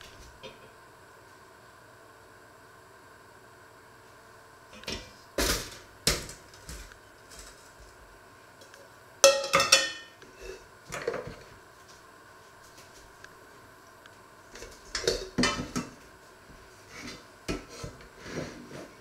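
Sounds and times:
metal bowl clank ringing: 9.2s - 10.2s
metal bowls knocking on wood: 9.2s - 10.2s.

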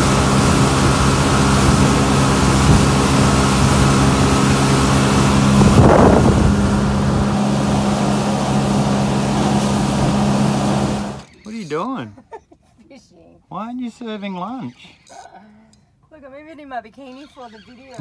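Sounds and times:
wind buffeting microphone: 0.0s - 11.2s
rush of water: 0.0s - 11.3s
outboard motor running: 0.0s - 12.0s.

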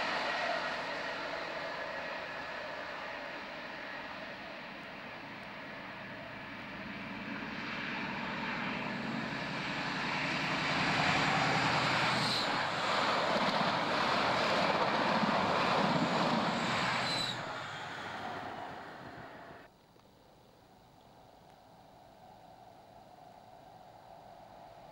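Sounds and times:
train wheels on rails: 0.0s - 6.0s, 7.3s - 19.7s
diesel train engine passing: 0.0s - 19.7s.

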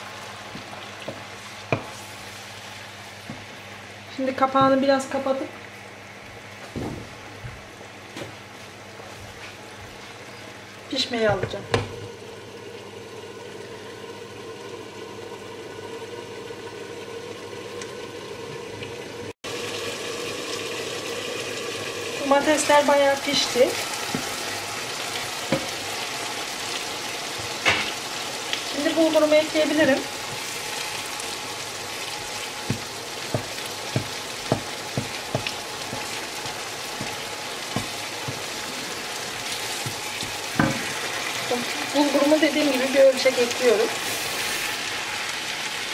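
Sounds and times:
sauce simmering bubbling hiss: 19.5s - 42.0s
wooden spoon knocking pan: 32.6s - 38.7s.

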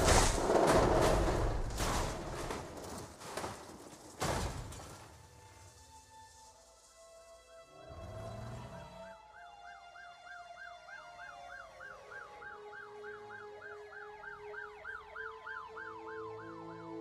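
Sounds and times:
siren yelping: 9.0s - 16.9s.

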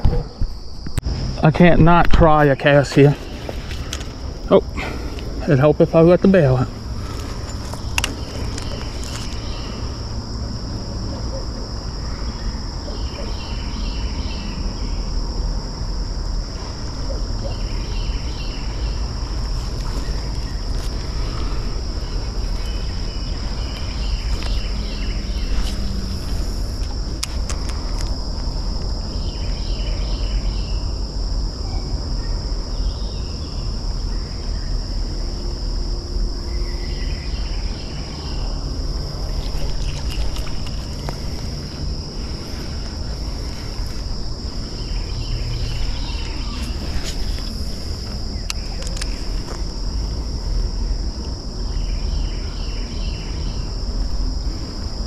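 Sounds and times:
high-pitched insect chorus: 0.0s - 55.0s
sharp clicks: 48.4s - 49.2s.

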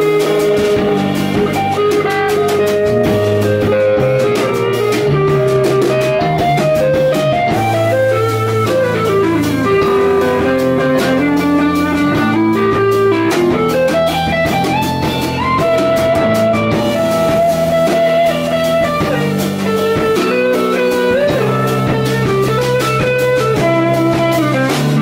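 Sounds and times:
drum kit playing: 0.0s - 25.0s
electric guitars playing: 0.0s - 25.0s.

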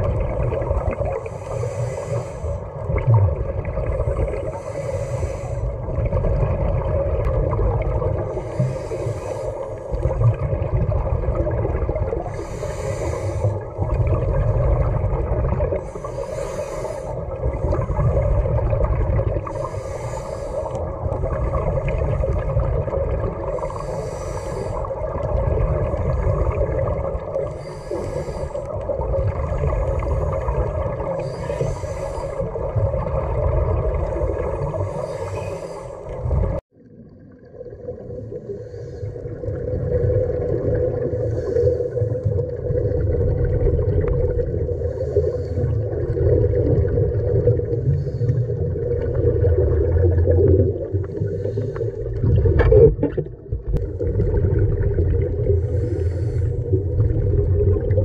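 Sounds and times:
exhaled air bubbling: 0.0s - 58.0s
regulator inhale hiss: 1.0s - 3.0s, 3.9s - 5.9s, 8.2s - 10.3s, 12.2s - 13.9s, 15.7s - 18.2s, 19.4s - 22.7s, 23.3s - 32.8s, 34.0s - 36.3s, 38.3s - 39.4s, 41.0s - 42.4s, 44.7s - 46.0s, 47.6s - 48.9s, 51.0s - 52.2s, 55.4s - 56.9s.

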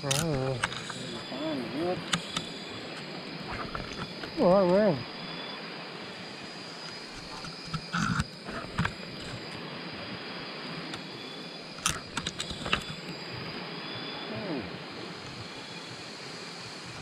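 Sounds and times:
constant high-pitched tone: 0.0s - 17.0s
insects hissing: 0.0s - 17.0s
sharp knocks and clicks: 2.0s - 3.0s, 6.9s - 9.5s, 11.8s - 13.1s.

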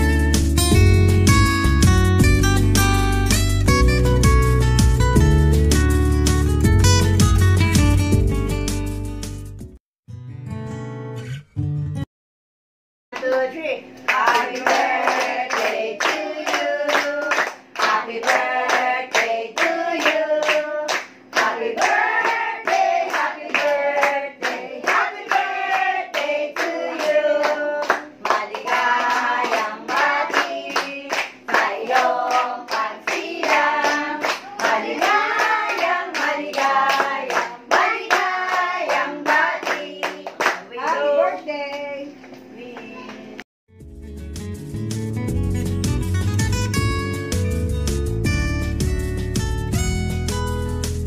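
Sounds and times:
people clapping in time: 14.0s - 41.0s
group singing birthday song: 14.1s - 41.5s.

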